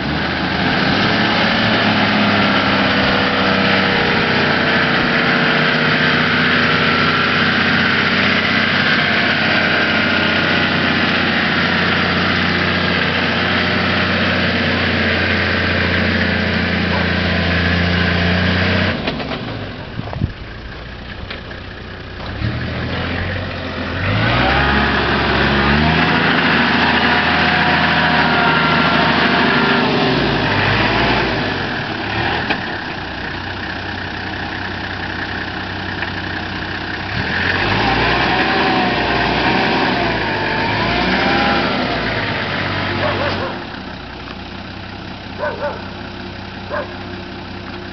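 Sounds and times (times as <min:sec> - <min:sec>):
vehicle engine revving in sand: 0:00.0 - 0:19.9, 0:22.2 - 0:33.0, 0:36.9 - 0:44.0, 0:45.4 - 0:45.9.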